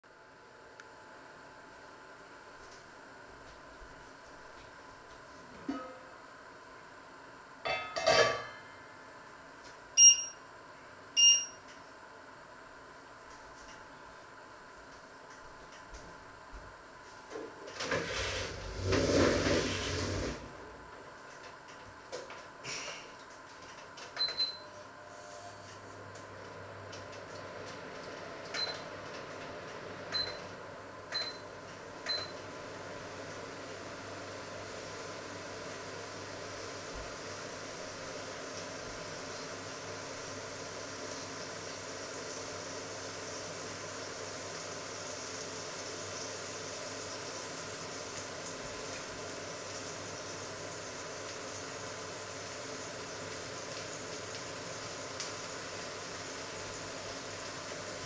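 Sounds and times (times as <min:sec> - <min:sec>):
appliance control panel beeps: 0:10.0 - 0:10.4, 0:11.2 - 0:11.7, 0:24.2 - 0:24.8, 0:28.5 - 0:28.9, 0:30.1 - 0:30.5, 0:31.1 - 0:31.5, 0:32.1 - 0:32.4
hob touch control beeps: 0:10.0 - 0:10.4, 0:11.2 - 0:11.6.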